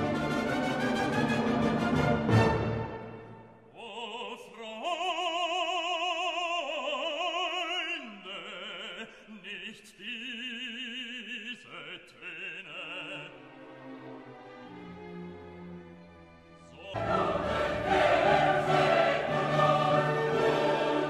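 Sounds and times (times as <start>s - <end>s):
orchestral accompaniment: 0.0s - 3.7s, 13.4s - 21.0s
operatic voice singing: 3.7s - 13.7s, 16.6s - 21.0s.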